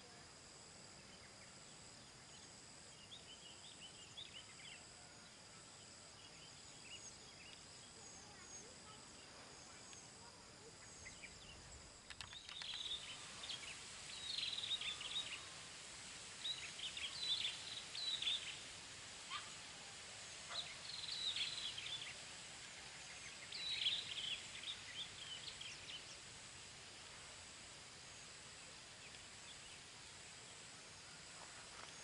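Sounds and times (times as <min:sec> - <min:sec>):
outdoor hiss: 0:00.0 - 0:32.0
small birds chirping: 0:06.2 - 0:19.7, 0:20.4 - 0:31.0.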